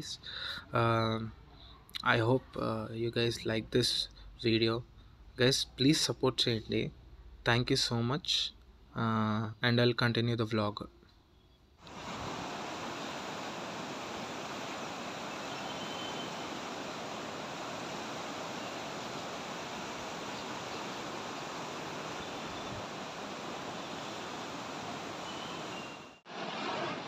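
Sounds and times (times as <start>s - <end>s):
river rushing over rocks: 11.9s - 27.0s.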